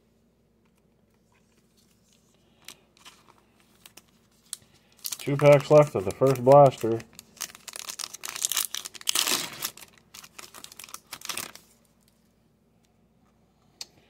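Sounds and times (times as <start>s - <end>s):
plastic wrapper tearing and crinkling: 2.6s - 12.2s.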